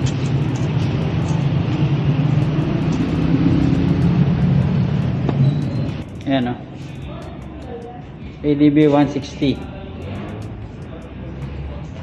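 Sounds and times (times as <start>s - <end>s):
vehicle engine droning: 0.0s - 8.4s.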